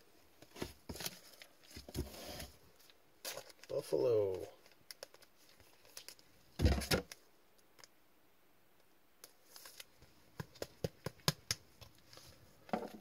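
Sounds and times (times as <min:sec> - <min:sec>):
cards rustling: 0:09.2 - 0:12.4.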